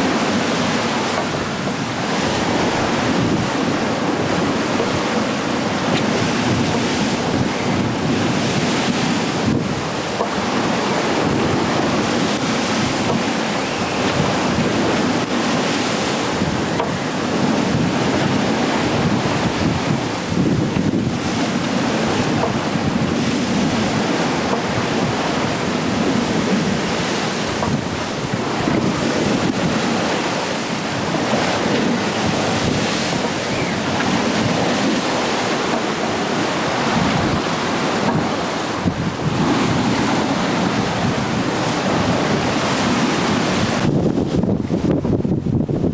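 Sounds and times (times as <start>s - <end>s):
rough sea rushing along hull: 0.0s - 45.9s
wind buffeting microphone: 0.0s - 45.9s.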